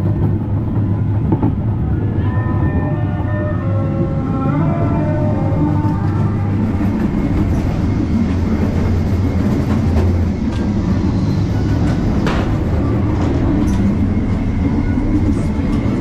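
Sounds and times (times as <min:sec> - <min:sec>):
ride train wheels rumbling: 0:00.0 - 0:16.0.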